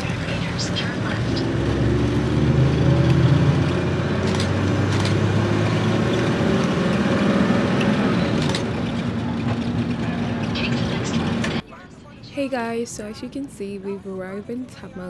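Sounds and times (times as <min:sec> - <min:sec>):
bus engine hum: 0:00.0 - 0:11.6
road noise: 0:00.0 - 0:12.8.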